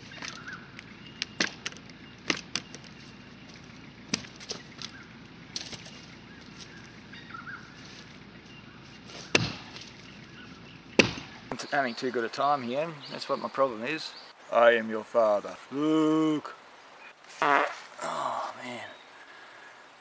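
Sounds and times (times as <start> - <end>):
axe chopping log: 1.2 - 2.9, 4.1 - 6.0, 9.1 - 10.0, 11.0 - 11.4.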